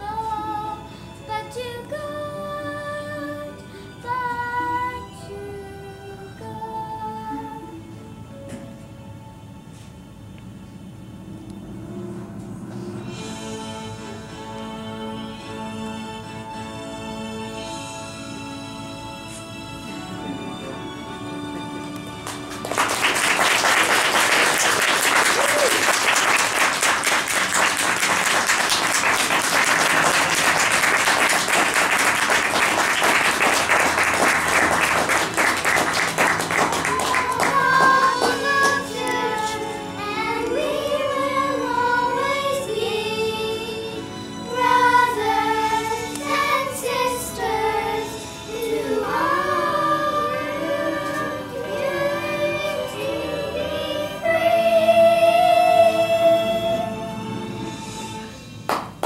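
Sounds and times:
audience applauding: 22.0 - 39.6, 58.7 - 59.0
group of children singing: 22.8 - 58.2.

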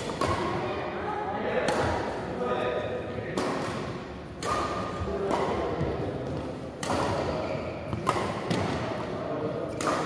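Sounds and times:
racket hitting shuttlecock: 0.0 - 0.6, 1.6 - 2.2, 3.3 - 9.1, 9.7 - 10.0
sports hall background noise: 0.0 - 10.0.

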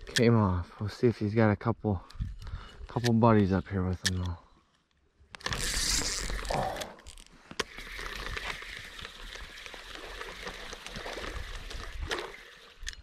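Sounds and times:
reel bail click: 2.0 - 4.4
fishing reel cranking: 5.4 - 13.0.

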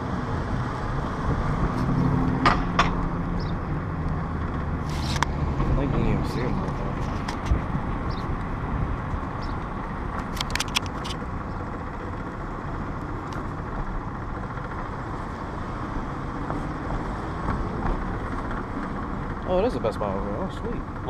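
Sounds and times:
car road and engine noise: 0.0 - 21.0
sharp clicks: 10.2 - 11.2.

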